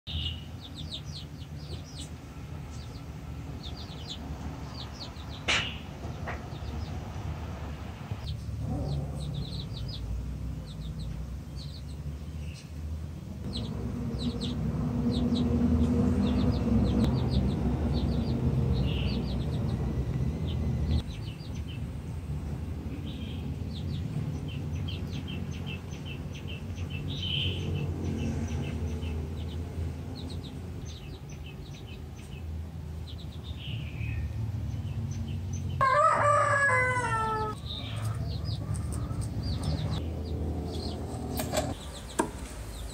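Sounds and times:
small birds chirping: 0:00.1 - 0:42.9
low background rumble: 0:08.0 - 0:26.9
rooster crowing: 0:35.8 - 0:39.3.

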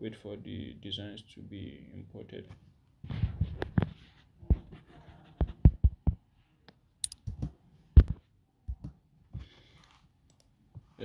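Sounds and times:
mouse and keyboard clicks: 0:07.0 - 0:08.1.

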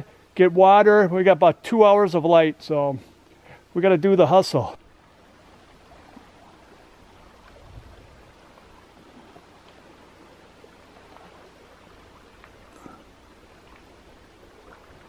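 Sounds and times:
faint outdoor hiss: 0:00.0 - 0:15.0
faint ticks: 0:12.4 - 0:14.0.

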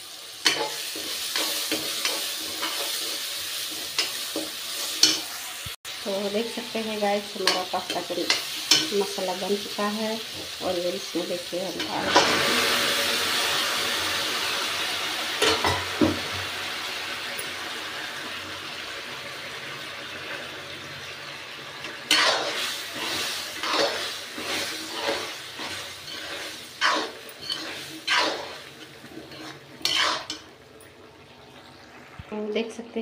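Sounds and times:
masala sizzling in a pan: 0:00.0 - 0:33.0
metal spatula scraping a pan: 0:00.4 - 0:05.5, 0:11.2 - 0:12.9, 0:21.8 - 0:30.5.

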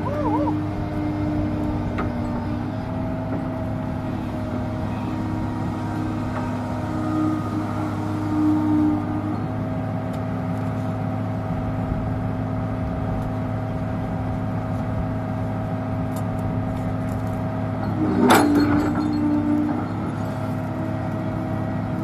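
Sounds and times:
excavator diesel engine idling: 0:00.0 - 0:17.9.

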